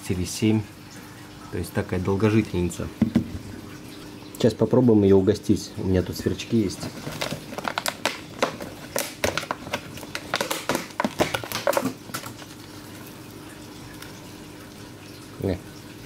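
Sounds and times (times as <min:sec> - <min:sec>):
faint steady hum: 0:00.0 - 0:16.0
crickets container clicking and rustling: 0:06.5 - 0:12.6.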